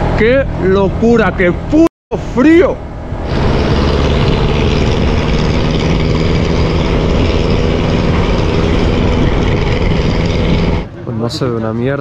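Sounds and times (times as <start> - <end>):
wind noise: 2.9 - 11.0
motorbike engine running: 3.3 - 10.9.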